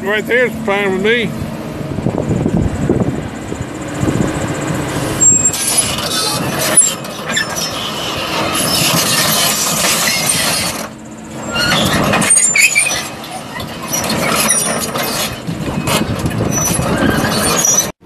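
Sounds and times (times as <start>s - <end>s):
diesel engine under load: 0.0s - 18.0s
track chains clanking: 3.4s - 17.9s
undercarriage squeaks: 5.2s - 18.0s.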